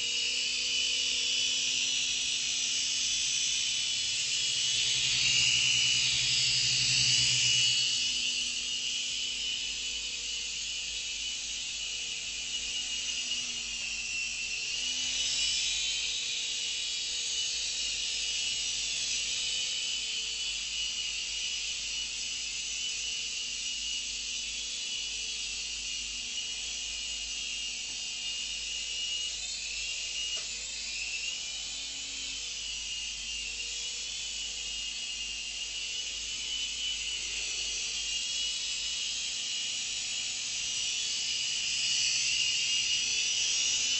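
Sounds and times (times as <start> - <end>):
toy helicopter motor whine: 0.0 - 43.9.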